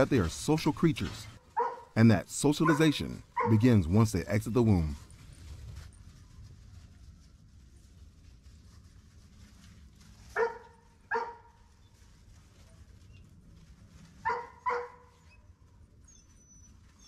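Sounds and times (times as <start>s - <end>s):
puppy barking: 1.6s - 2.0s, 2.6s - 3.7s, 10.3s - 11.5s, 14.2s - 15.1s.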